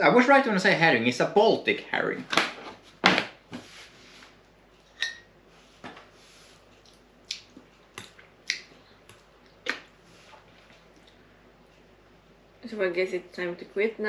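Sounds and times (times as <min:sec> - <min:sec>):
chewing mouth smacks: 0:06.8 - 0:11.2.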